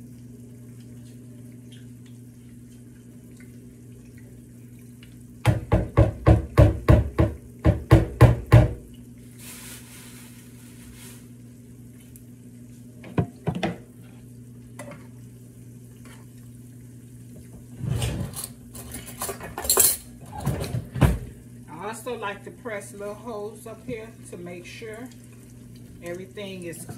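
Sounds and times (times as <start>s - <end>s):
oil sizzling faintly: 8.8s - 26.9s
utensil and dish clatter: 17.9s - 21.2s.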